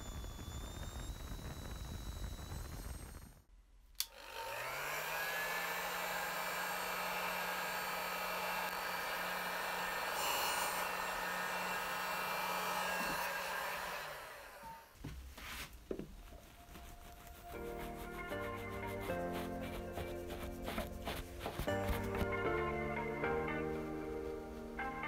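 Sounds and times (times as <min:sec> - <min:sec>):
heat gun fan blowing: 0:00.0 - 0:14.9.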